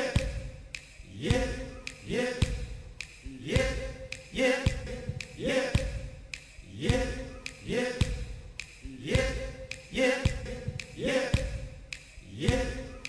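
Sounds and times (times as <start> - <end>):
man singing short looped word: 0.0 - 13.0.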